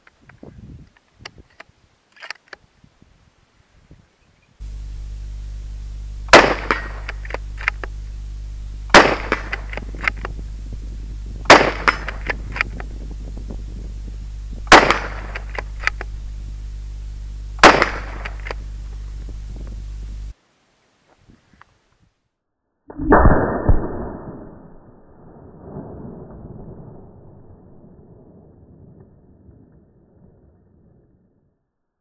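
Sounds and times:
small clicks: 0.0s - 2.6s, 4.6s - 20.3s
rifle shots: 4.6s - 20.3s
low hum: 4.6s - 20.4s, 22.8s - 31.6s.

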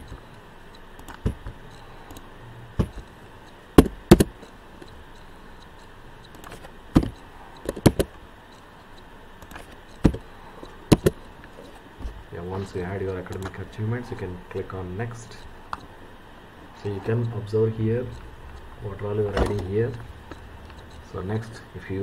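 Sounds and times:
mouse and keyboard clicks: 13.1s - 13.6s.

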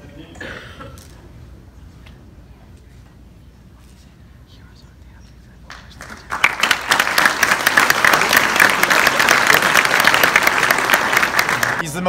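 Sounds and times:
audience applauding: 6.0s - 11.8s.

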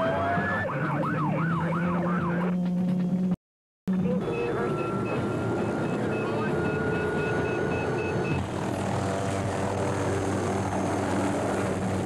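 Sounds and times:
helicopter taking off: 0.0s - 12.0s
high turbine whine: 3.9s - 12.0s.

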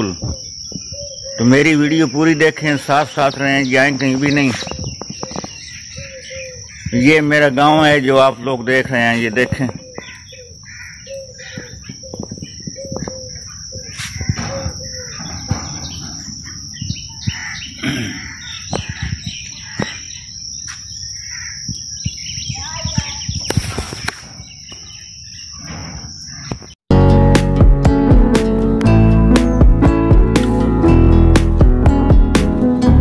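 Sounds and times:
small birds chirping: 0.0s - 26.8s
plucked guitar music: 26.9s - 33.0s.

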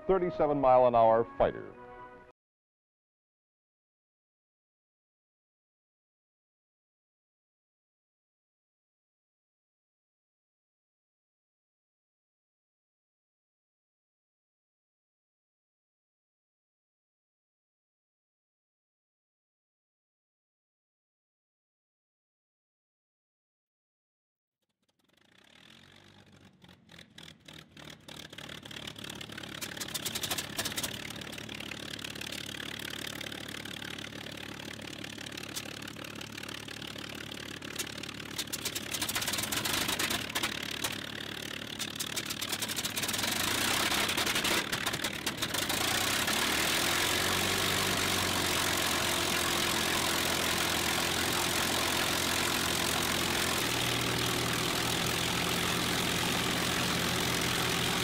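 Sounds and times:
aircraft piston engine starting: 25.0s - 58.0s.

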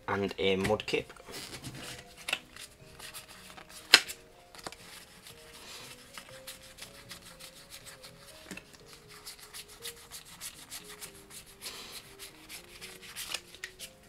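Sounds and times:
soft background music: 0.0s - 14.0s
plastic card pack crinkling: 1.3s - 5.1s, 12.0s - 14.0s.

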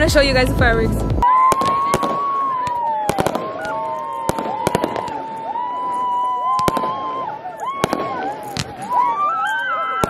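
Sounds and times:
fireworks whistles bending down: 1.2s - 10.0s
fireworks bangs and crackles: 1.3s - 10.0s.

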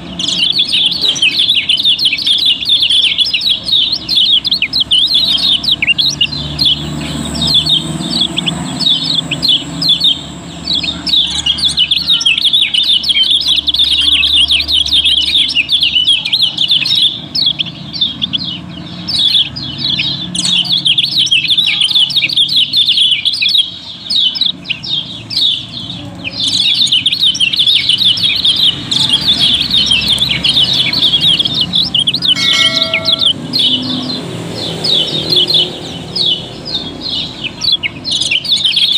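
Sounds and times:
birds chirping in chorus: 0.0s - 38.9s.

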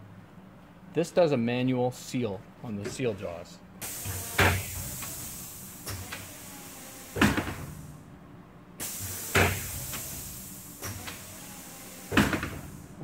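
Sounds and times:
steady hiss: 3.8s - 8.0s, 8.8s - 13.0s.

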